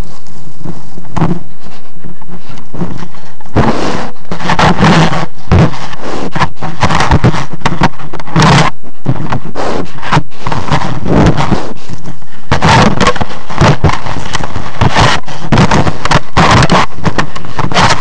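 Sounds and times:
scrapes on microphone: 0:00.0 - 0:18.0
animal sniffing at microphone: 0:00.6 - 0:18.0.

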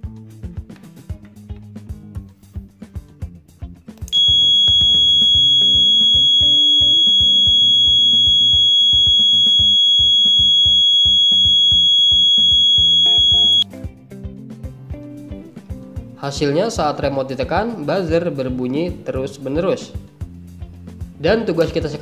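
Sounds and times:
background music: 0:00.0 - 0:04.2, 0:13.6 - 0:22.0
high-pitched buzzer tone: 0:04.2 - 0:13.6.

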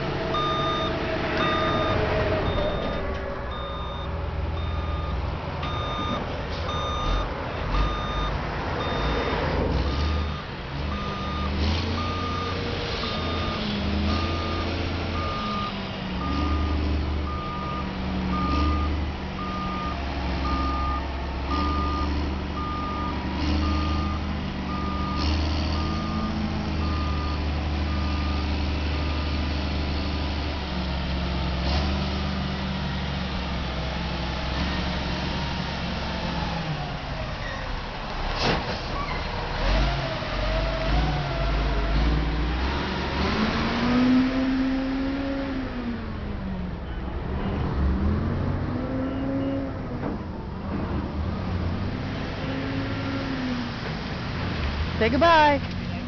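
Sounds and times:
truck reversing alarm beeping: 0:00.3 - 0:29.5.

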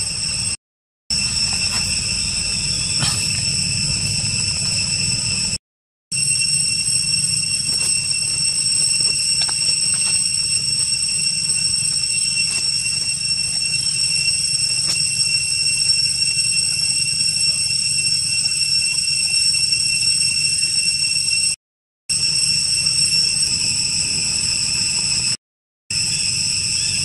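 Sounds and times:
high-pitched insect drone: 0:00.0 - 0:05.6, 0:06.2 - 0:21.5, 0:22.1 - 0:27.0
low hum: 0:00.0 - 0:05.6.

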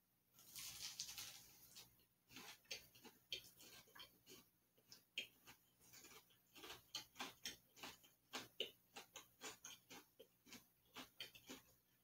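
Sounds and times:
person chewing crunchy treat: 0:00.4 - 0:12.0.

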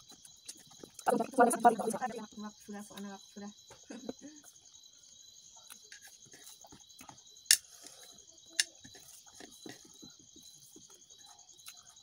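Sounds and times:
insects chirping: 0:00.0 - 0:12.0
person eating with fingers: 0:10.8 - 0:12.0.

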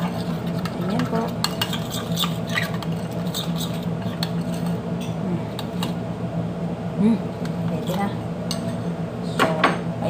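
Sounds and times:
spoon stirring thick sauce: 0:00.0 - 0:04.8.

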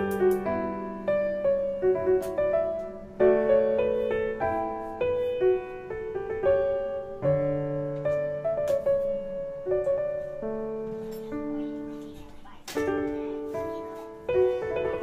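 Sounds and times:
slow piano music: 0:00.0 - 0:15.0.

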